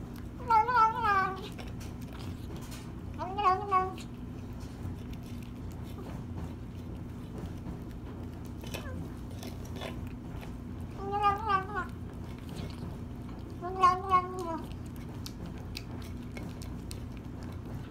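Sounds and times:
kitten chewing and licking: 0.0s - 17.9s
kitten whiny vocal sound: 0.4s - 1.7s, 3.2s - 4.2s, 10.9s - 12.8s, 13.4s - 14.9s.

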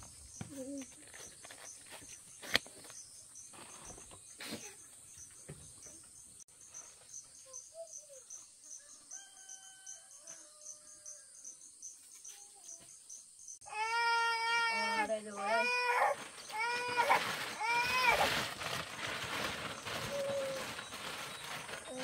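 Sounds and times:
insects chirping: 0.0s - 17.4s.

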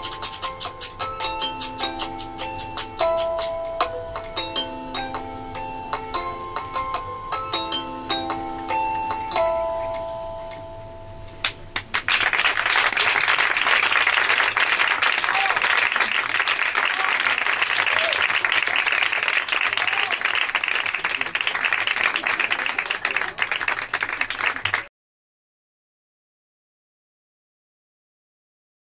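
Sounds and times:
audience applauding: 11.4s - 24.9s.

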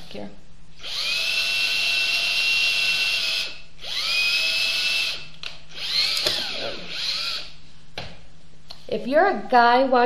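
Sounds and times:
electric drill boring into wood: 0.8s - 7.6s.

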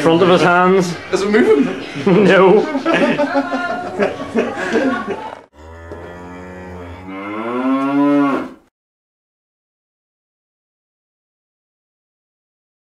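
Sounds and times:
voices: 0.0s - 5.5s
cow mooing: 5.5s - 8.7s.

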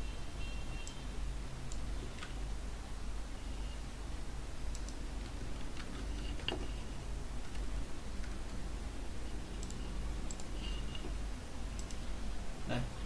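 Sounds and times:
computer mouse and keyboard clicks: 4.7s - 6.8s, 9.6s - 12.1s.

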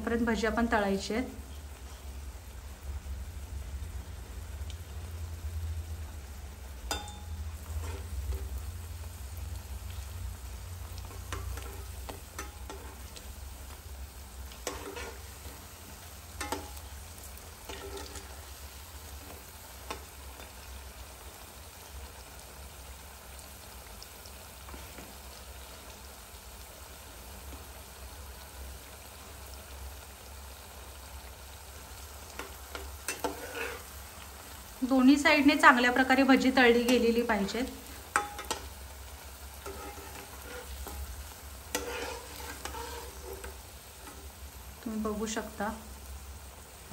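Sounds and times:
potato slices frying in oil: 0.0s - 46.9s
spatula tapping and scraping pan: 6.9s - 8.5s, 11.1s - 13.2s, 14.6s - 15.6s, 16.4s - 16.8s, 17.7s - 18.3s, 32.4s - 33.8s, 38.1s - 38.7s, 39.6s - 41.1s, 41.7s - 44.2s.

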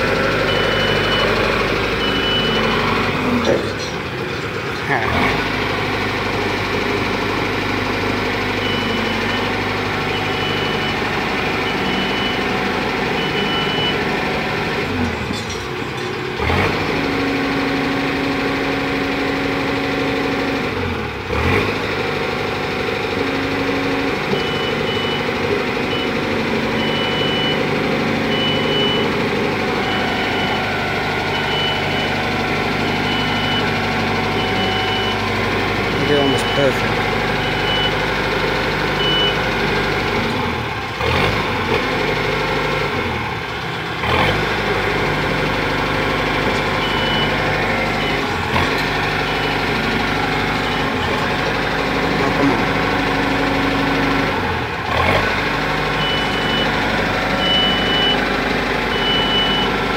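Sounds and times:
boom lift engine running: 0.0s - 59.9s
motion alarm beeping: 0.5s - 1.4s, 2.0s - 2.8s, 29.8s - 35.3s, 35.9s - 38.0s, 57.4s - 58.3s, 58.9s - 59.8s.

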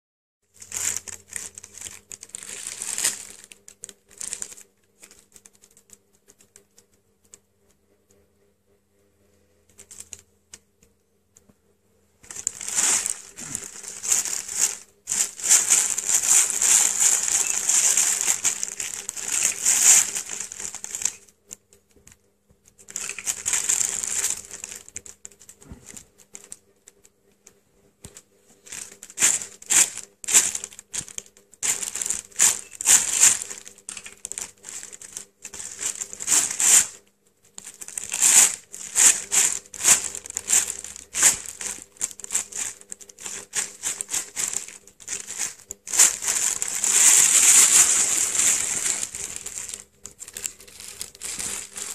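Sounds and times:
plastic bag crinkling: 0.5s - 6.6s, 9.7s - 10.2s, 12.2s - 51.9s.

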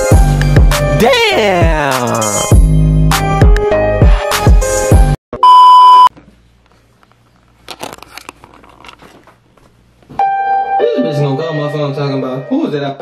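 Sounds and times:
hip hop beat with deep bass: 0.0s - 5.2s.

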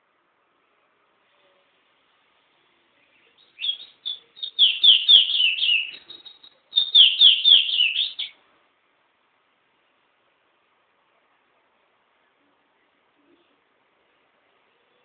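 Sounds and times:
songbird singing: 2.8s - 8.4s.

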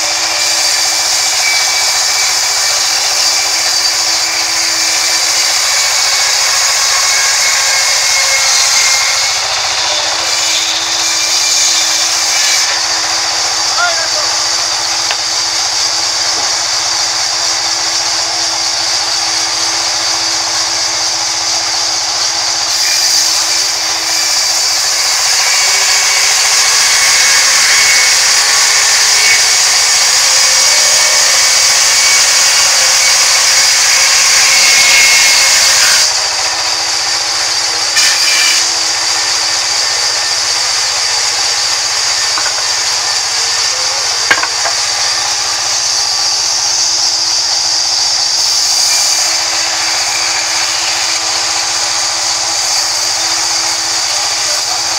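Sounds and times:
band saw cutting log: 0.0s - 54.9s
wood knocking: 42.3s - 42.7s, 44.3s - 44.8s.

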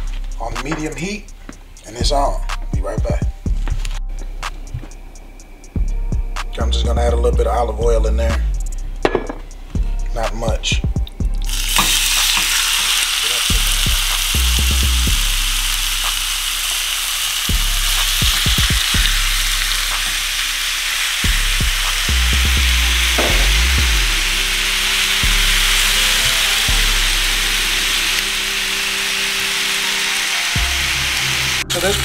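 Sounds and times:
meat sizzling in oil: 11.5s - 32.0s.

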